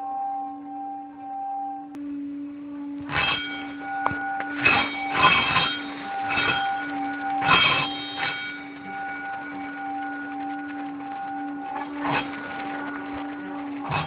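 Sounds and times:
higher held tones: 0.0s - 14.0s
low ringing tone: 0.0s - 14.0s
loud rushing swells: 2.1s - 14.0s.

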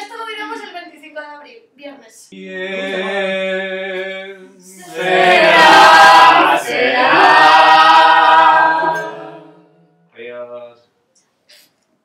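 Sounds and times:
group singing long notes: 2.4s - 10.0s.

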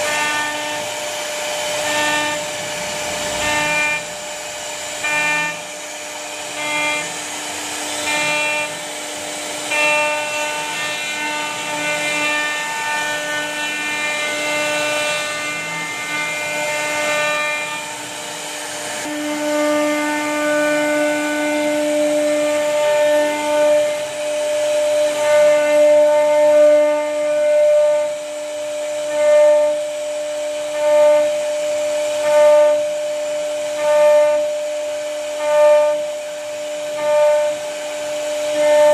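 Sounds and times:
bit cutting wood: 0.0s - 24.2s
router spindle whining: 0.0s - 38.9s.

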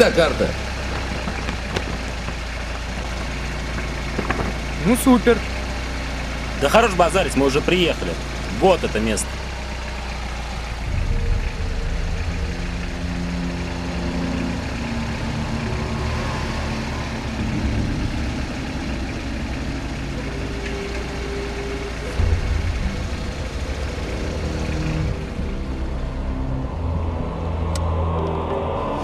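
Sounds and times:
van engine rumbling: 0.0s - 29.0s
sustained low tones: 9.2s - 29.0s.

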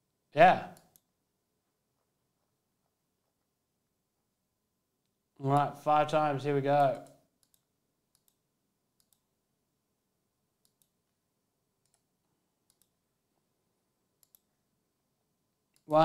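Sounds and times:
faint computer mouse clicks: 6.8s - 8.4s, 9.0s - 9.3s, 10.6s - 11.0s, 11.8s - 13.0s, 14.2s - 14.5s.

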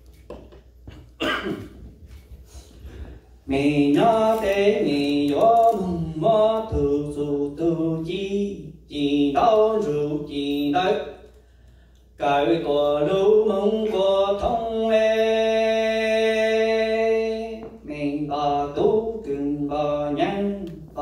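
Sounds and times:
throat clearing: 0.9s - 1.9s
man chanting a lament: 3.5s - 11.2s.

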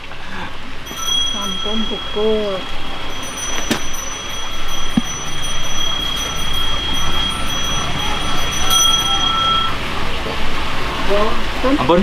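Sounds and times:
hand bell ringing: 0.8s - 9.9s.

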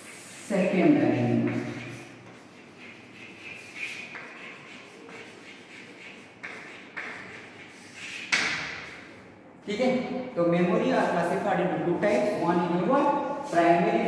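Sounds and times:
chalk tapping on board: 0.0s - 9.1s
chalk scratching on chalkboard: 0.0s - 9.2s, 10.8s - 14.0s.

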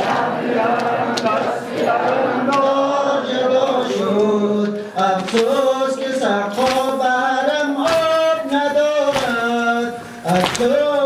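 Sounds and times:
man singing a lament: 2.4s - 11.0s.

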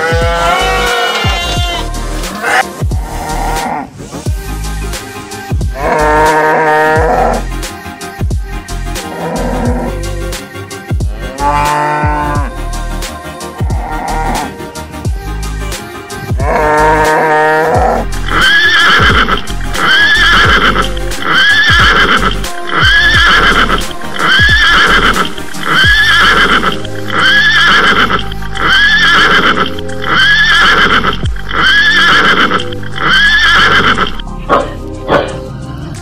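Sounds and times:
cow moo: 0.0s - 1.6s, 2.4s - 3.9s, 5.8s - 7.4s, 9.0s - 10.0s, 11.2s - 12.5s, 16.4s - 34.2s
horse neigh: 0.0s - 3.8s, 16.5s - 34.2s
background music: 0.0s - 36.0s.

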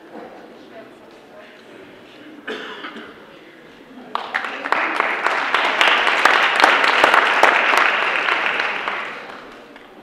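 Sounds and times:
audience applauding: 4.1s - 10.0s.

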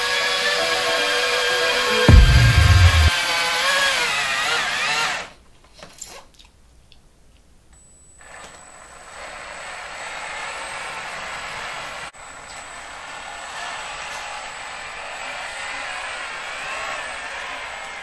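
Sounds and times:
intro music: 0.2s - 3.1s.

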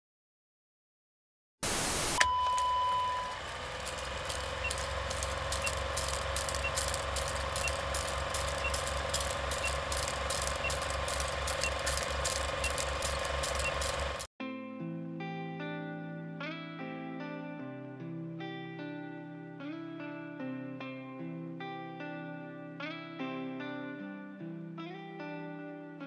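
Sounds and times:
steady hiss: 1.6s - 2.2s
faint short beep: 2.2s - 3.4s
test tone: 2.2s - 14.3s
film projector clatter: 3.2s - 14.3s.

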